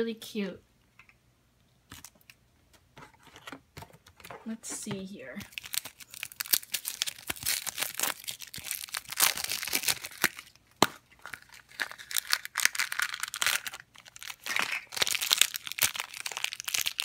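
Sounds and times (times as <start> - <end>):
plastic packaging tearing and crumpling: 5.4 - 17.0.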